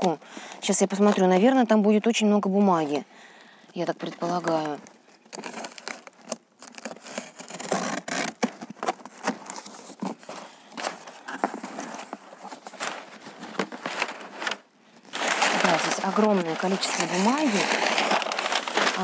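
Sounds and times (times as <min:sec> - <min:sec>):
packing paper rustling: 0:03.9 - 0:19.0
cardboard box being opened: 0:05.3 - 0:19.0.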